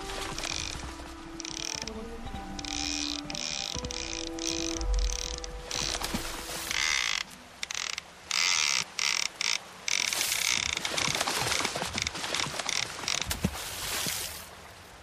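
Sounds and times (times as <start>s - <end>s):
fishing reel ratcheting: 0.4s - 0.8s, 1.4s - 1.9s, 2.6s - 6.0s, 6.7s - 10.8s.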